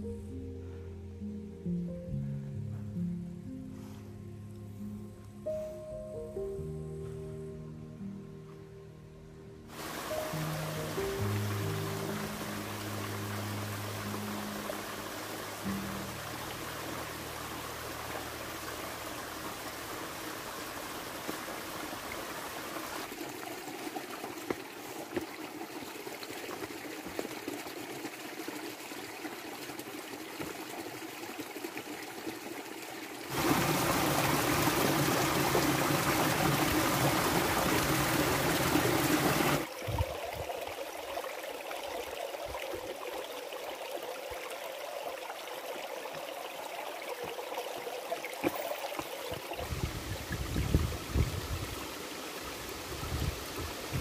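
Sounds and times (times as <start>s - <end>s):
stream trickling over boulders: 9.7s - 54.0s.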